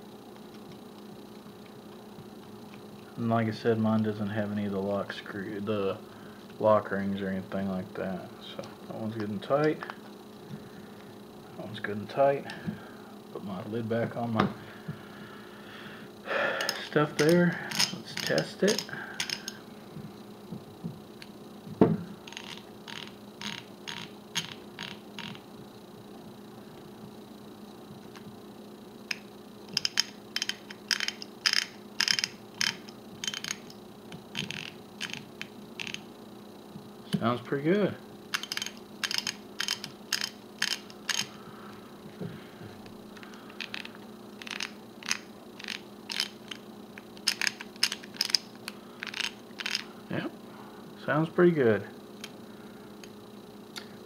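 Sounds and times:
ratchet pawl clicking: 16.6 - 19.6, 22.2 - 25.4, 29.1 - 36.0, 38.3 - 41.3, 43.2 - 49.9.

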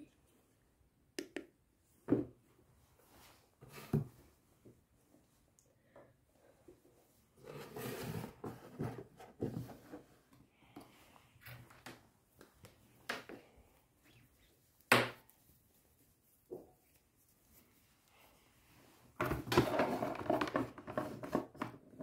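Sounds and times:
cardboard sliding and rubbing: 7.4 - 10.3.

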